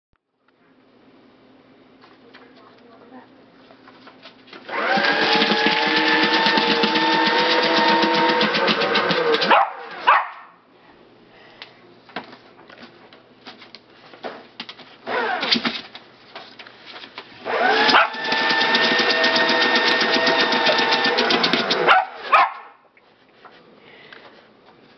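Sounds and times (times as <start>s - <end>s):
paper shredder grinding paper: 4.6s - 10.1s, 15.0s - 15.7s, 17.2s - 22.4s.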